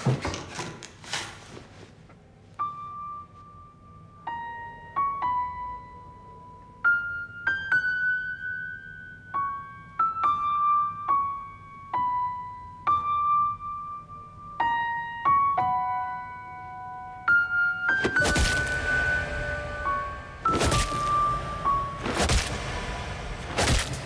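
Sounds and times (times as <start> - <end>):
slow solo piano melody: 4.3 - 22.0.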